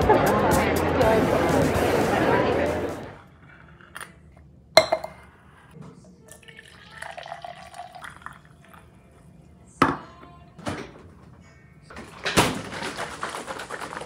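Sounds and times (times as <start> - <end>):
pitcher knocking on stone countertop: 4.8 - 5.2
drink pouring into a glass: 6.3 - 9.0.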